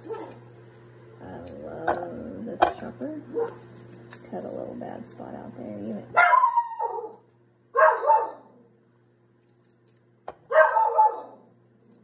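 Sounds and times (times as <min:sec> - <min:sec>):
dog barking: 0:00.0 - 0:00.4, 0:03.3 - 0:03.6, 0:06.2 - 0:08.6, 0:10.5 - 0:11.5.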